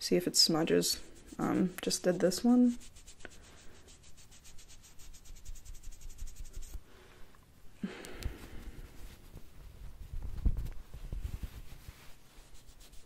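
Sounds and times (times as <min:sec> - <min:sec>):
wipe scrubbing skin: 0:00.4 - 0:06.8, 0:11.2 - 0:13.0.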